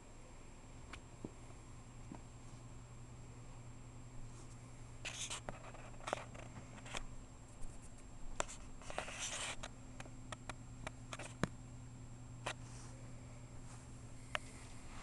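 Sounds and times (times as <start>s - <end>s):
faint steady hum: 0.0s - 15.0s
cat claws scratching carpet: 4.4s - 9.7s.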